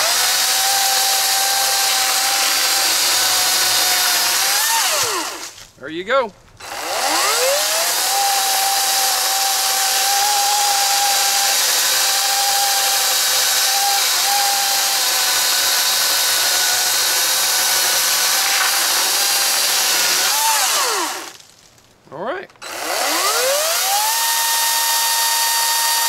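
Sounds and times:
chain tearing through wood: 17.7 - 21.9
electric motor whine: 22.6 - 26.0.

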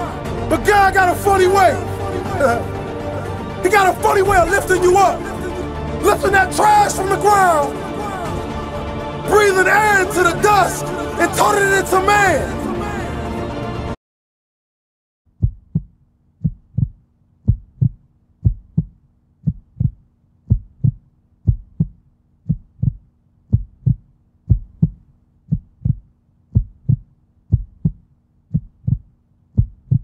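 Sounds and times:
heartbeat thumps: 15.4 - 30.0.

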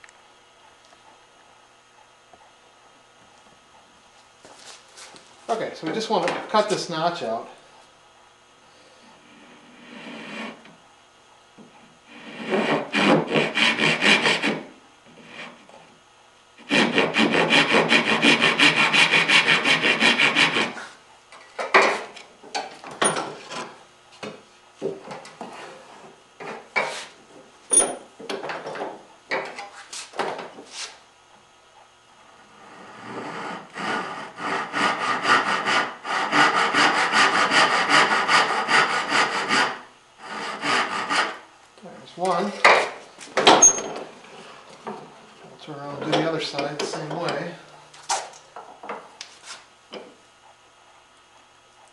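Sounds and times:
handsaw cutting wood: 9.2 - 10.7, 12.1 - 15.7, 16.6 - 21.0, 32.8 - 41.5
tools knocking and scraping on wood: 21.4 - 27.0, 27.7 - 30.7, 42.6 - 44.1.

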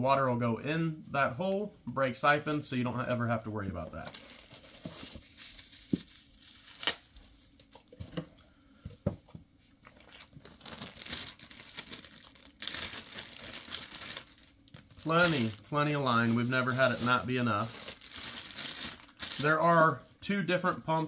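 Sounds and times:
plastic bags crinkling: 10.0 - 19.8.

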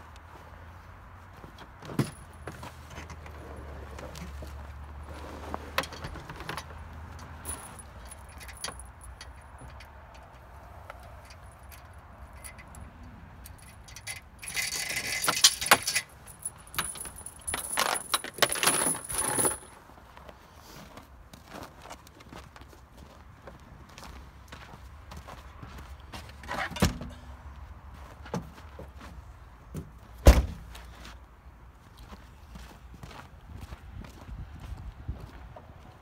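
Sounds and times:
steel chain rattling: 5.8 - 10.4, 11.0 - 19.8.

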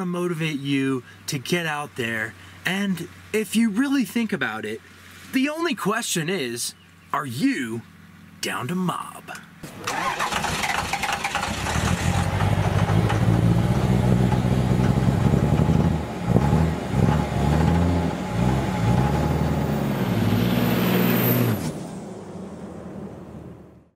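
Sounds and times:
vehicle engine running: 9.5 - 21.6.

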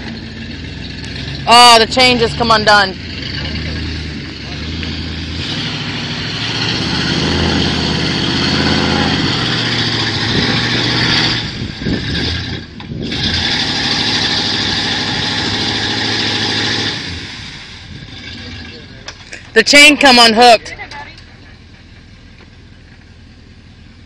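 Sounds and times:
truck engine revving: 0.0 - 23.1.

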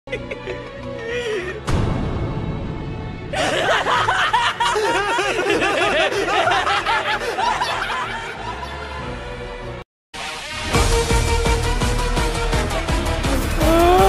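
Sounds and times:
music: 0.1 - 14.0
cackling laughter: 3.4 - 9.0.

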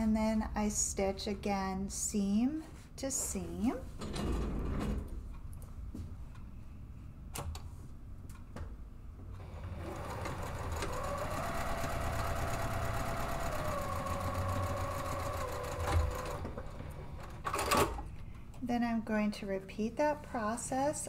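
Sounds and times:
sewing machine stitching: 9.4 - 18.0.

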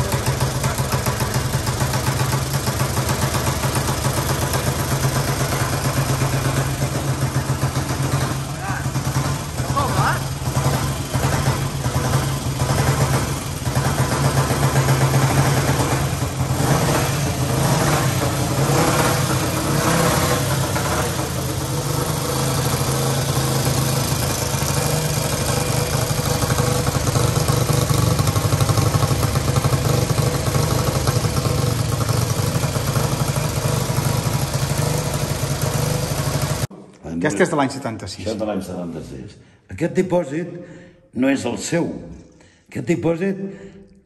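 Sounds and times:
motorcycle engine revving and idling: 0.0 - 36.7.

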